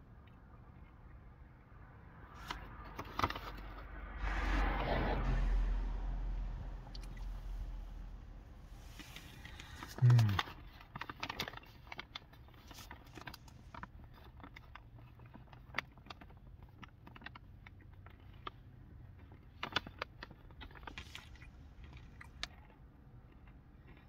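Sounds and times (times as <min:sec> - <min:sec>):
chewing crunchy peanuts: 0:08.8 - 0:24.0.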